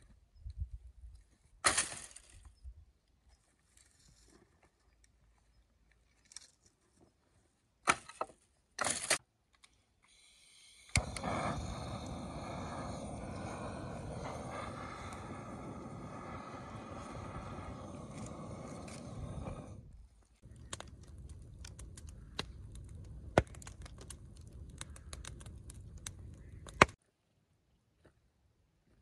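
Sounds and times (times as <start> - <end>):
blowtorch hissing: 10.2 - 19.9
dry branches crackling: 20.3 - 27.0.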